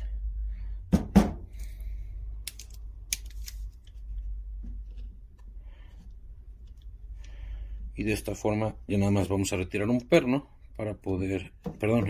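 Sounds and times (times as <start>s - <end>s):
steady low hum: 0.0s - 12.0s
metallic clicks of revolver frame: 2.4s - 4.0s.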